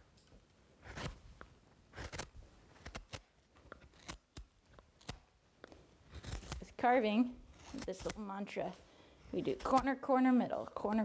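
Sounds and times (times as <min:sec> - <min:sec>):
knife slicing wood shavings: 0:06.1 - 0:06.8, 0:07.6 - 0:08.3.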